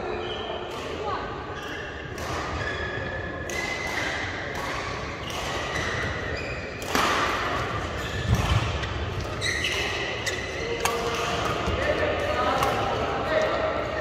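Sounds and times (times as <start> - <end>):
shoes squeaking on court: 1.4 - 3.9, 5.2 - 6.9, 7.7 - 11.0
racket hitting shuttlecock: 2.0 - 11.9, 12.6 - 13.1.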